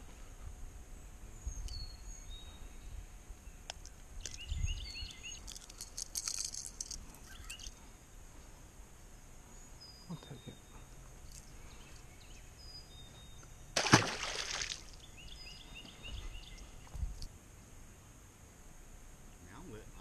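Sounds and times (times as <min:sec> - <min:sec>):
birds chirping: 0:01.3 - 0:06.1, 0:06.8 - 0:08.0, 0:09.0 - 0:17.3
handling clicks and rustles: 0:05.0 - 0:07.8.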